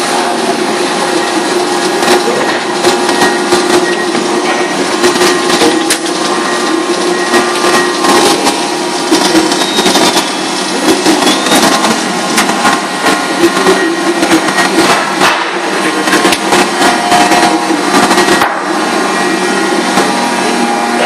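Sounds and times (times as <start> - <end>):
machinery running: 0.0 - 21.0.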